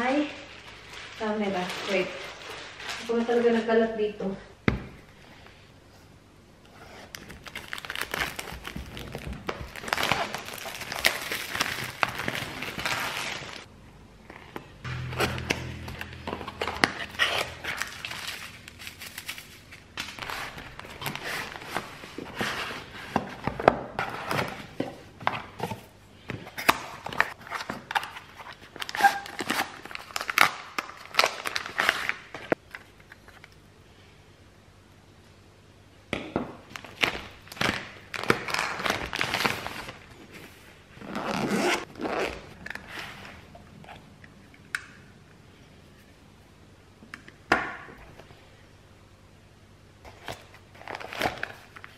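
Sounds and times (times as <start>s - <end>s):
paper rustling and crinkling: 0.4s - 3.6s, 7.1s - 13.7s.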